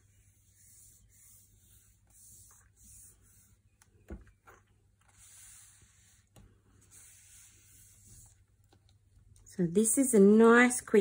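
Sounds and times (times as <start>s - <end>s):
hands rubbing paper: 0.0s - 4.0s, 4.8s - 8.8s.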